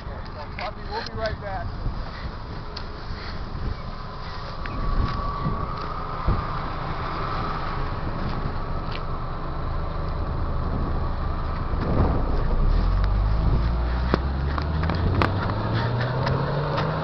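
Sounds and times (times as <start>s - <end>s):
car engine idling: 0.0s - 17.0s
rustling through grass: 1.7s - 8.6s.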